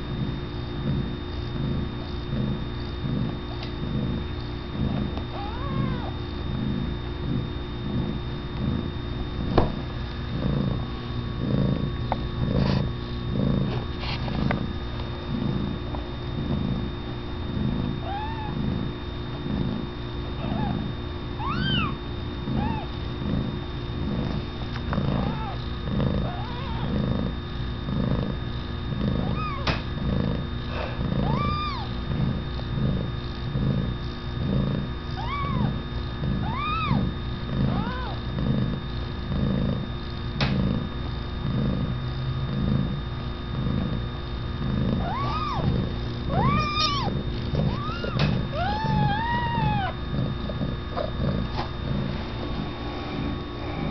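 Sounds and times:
cat purring: 0:00.0 - 0:53.9
kittens squeaky mewing: 0:05.3 - 0:06.2, 0:18.0 - 0:18.7, 0:20.4 - 0:23.0, 0:25.2 - 0:25.6, 0:26.2 - 0:27.0, 0:29.2 - 0:29.8, 0:31.2 - 0:32.0, 0:35.1 - 0:35.8, 0:36.4 - 0:38.2, 0:45.0 - 0:50.0.

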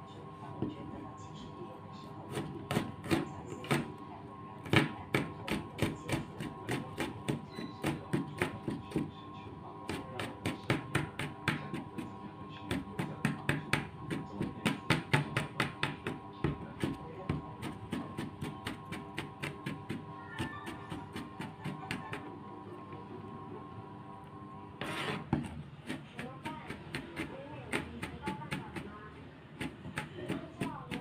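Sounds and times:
knife chopping on plastic board: 0:02.3 - 0:03.9, 0:04.7 - 0:09.1, 0:09.9 - 0:12.1, 0:12.7 - 0:22.1, 0:24.8 - 0:28.9, 0:29.6 - 0:31.0.

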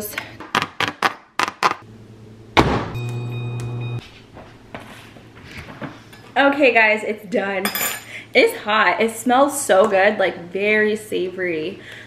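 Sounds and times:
microwave oven humming: 0:01.9 - 0:04.0.

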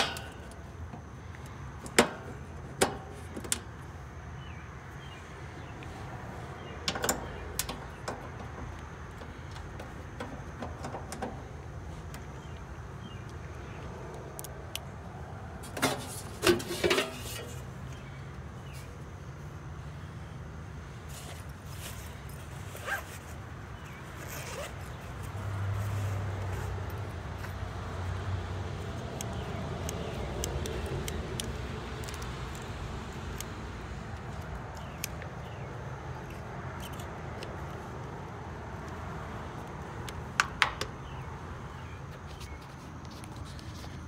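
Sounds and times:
rustling and handling noise: 0:21.0 - 0:27.6
zipper opening: 0:22.7 - 0:23.4, 0:24.2 - 0:24.9.

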